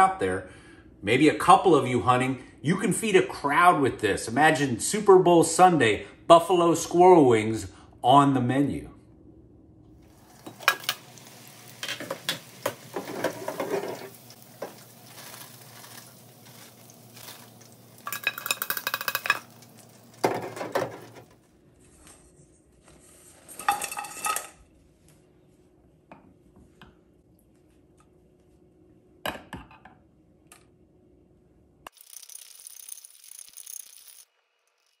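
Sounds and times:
food sizzling: 10.0s - 21.4s, 31.9s - 35.0s
metal utensils clattering: 10.4s - 21.3s.

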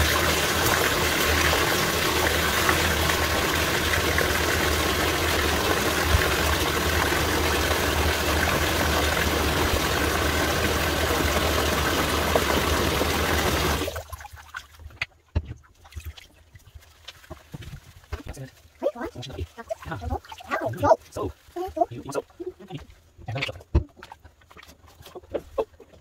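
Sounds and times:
faucet running into tub: 0.0s - 14.8s.

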